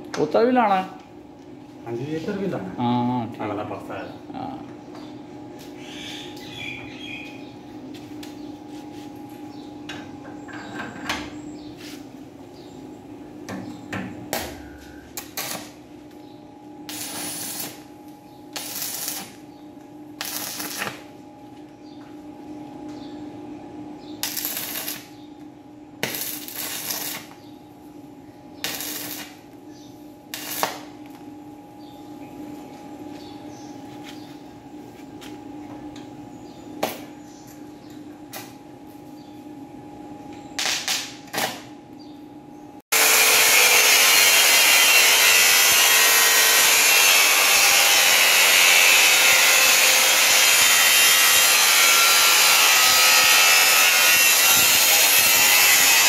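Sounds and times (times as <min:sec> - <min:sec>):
steady hum: 0:00.0 - 0:42.9
welding arc crackle: 0:15.2 - 0:15.8, 0:16.9 - 0:17.9, 0:18.5 - 0:19.4, 0:20.2 - 0:21.1, 0:24.2 - 0:25.2, 0:26.0 - 0:27.4, 0:28.6 - 0:29.5, 0:30.3 - 0:30.9, 0:40.6 - 0:41.6, 0:43.0 - 0:56.0.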